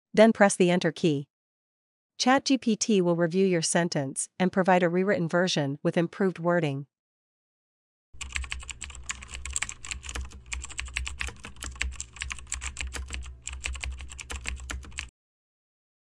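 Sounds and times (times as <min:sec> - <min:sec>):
rapid keyboard typing: 0:08.2 - 0:15.1.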